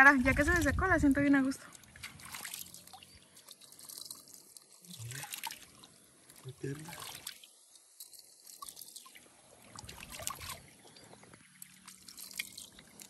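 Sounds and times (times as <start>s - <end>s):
small water splashes: 0.0s - 13.0s
water trickling and dripping: 0.0s - 13.0s.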